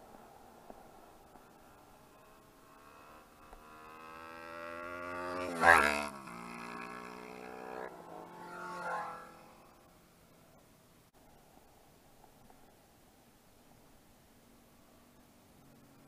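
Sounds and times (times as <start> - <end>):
motorcycle engine accelerating: 0.7 - 9.9.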